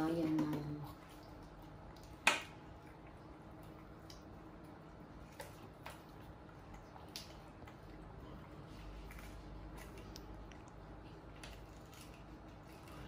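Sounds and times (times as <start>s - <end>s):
faint room hum: 0.0s - 13.0s.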